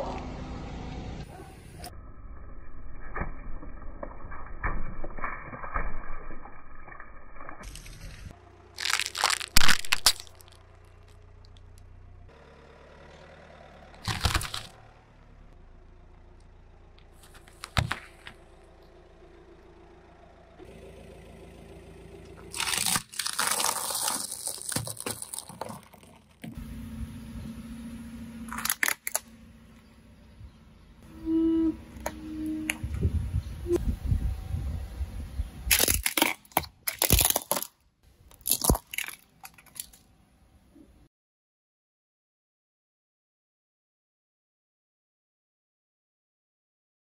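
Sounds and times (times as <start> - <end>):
tyre crushing objects cracking: 7.6 - 11.2, 14.0 - 14.8, 17.2 - 18.4, 22.4 - 26.6, 35.7 - 40.0
drink pouches bursting with splash: 8.8 - 10.5, 22.5 - 26.4
apples being squashed: 8.8 - 10.6, 14.0 - 14.8, 22.4 - 26.6, 28.5 - 29.3, 35.7 - 40.0.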